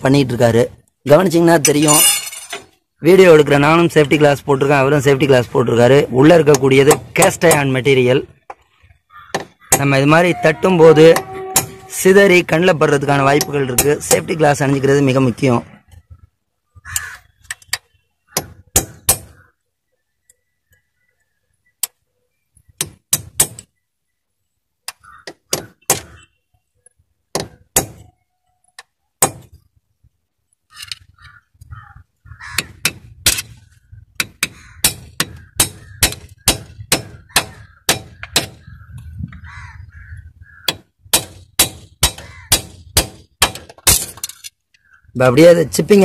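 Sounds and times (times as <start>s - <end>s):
hammer striking steel chisel: 11.1s - 11.8s.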